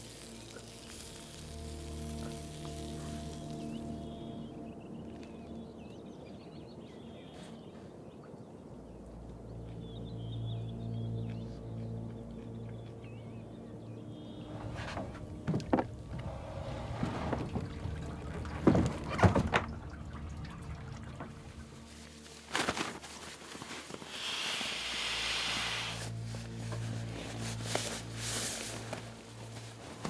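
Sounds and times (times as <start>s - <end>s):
air rushing from pump sack: 22.6s - 26.2s.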